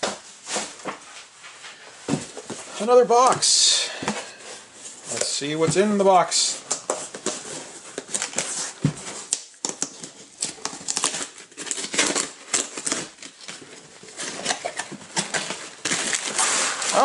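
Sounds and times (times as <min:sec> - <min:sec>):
cardboard box tearing: 0:07.2 - 0:17.0.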